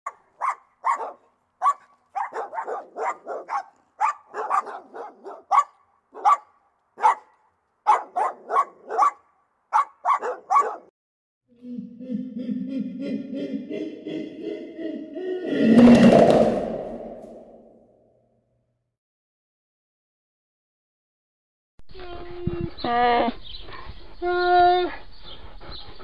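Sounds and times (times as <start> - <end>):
dog barking: 0.1 - 10.9.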